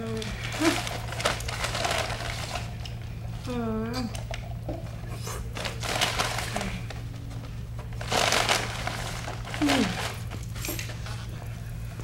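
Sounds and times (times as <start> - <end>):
steady low hum: 0.0 - 12.0
paper bag rustling: 0.1 - 2.8, 5.5 - 7.1, 7.8 - 11.3.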